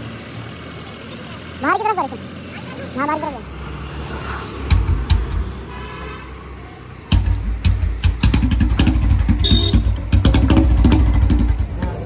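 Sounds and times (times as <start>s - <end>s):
vehicle low rumble: 0.0s - 12.0s
knocks and rattles: 7.1s - 12.0s.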